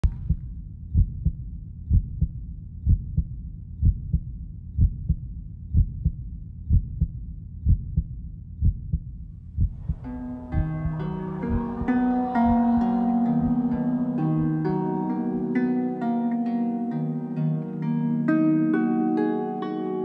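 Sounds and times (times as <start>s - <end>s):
heartbeat-style double thump: 0.0s - 13.8s
plucked notes: 9.9s - 20.0s
shimmering swell: 10.0s - 17.8s.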